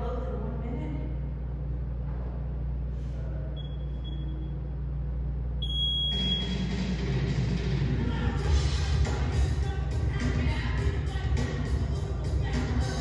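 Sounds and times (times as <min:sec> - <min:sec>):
music: 0:06.1 - 0:13.0.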